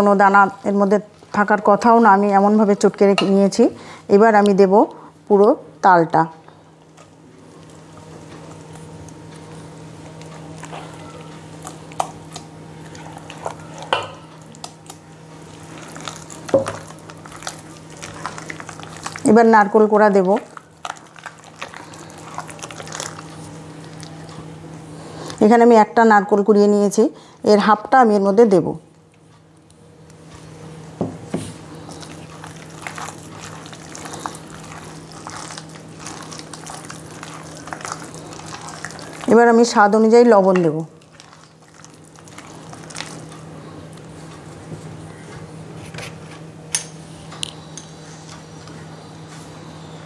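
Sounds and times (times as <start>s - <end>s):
hand squelching wet batter: 31.5s - 39.9s.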